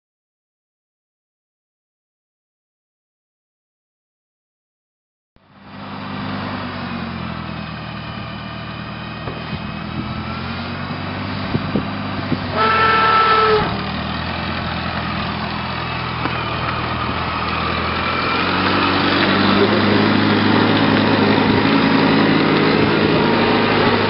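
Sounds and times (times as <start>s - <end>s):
small tractor engine running: 5.4s - 24.0s
horn toot: 12.5s - 13.8s.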